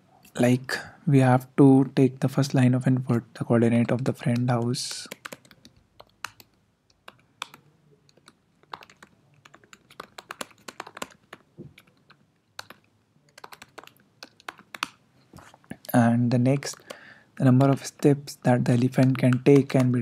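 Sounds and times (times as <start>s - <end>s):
typing on computer keyboard: 4.2s - 15.0s, 16.6s - 18.1s, 18.7s - 20.0s.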